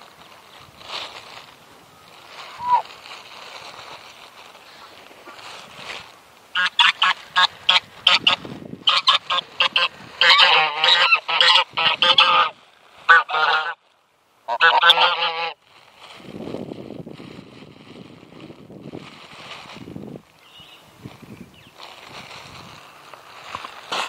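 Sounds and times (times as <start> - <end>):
geese honking: 2.5 - 2.8, 6.5 - 13.8, 14.4 - 15.6.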